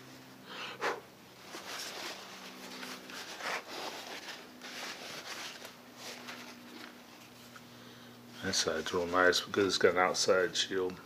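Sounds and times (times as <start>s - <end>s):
towel rubbing a lens: 1.4s - 6.9s.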